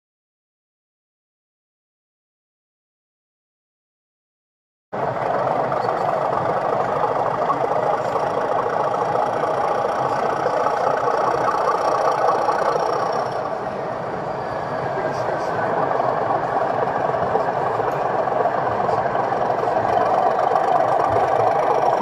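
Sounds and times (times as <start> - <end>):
diesel engine sound from small speaker: 5.0 - 22.0.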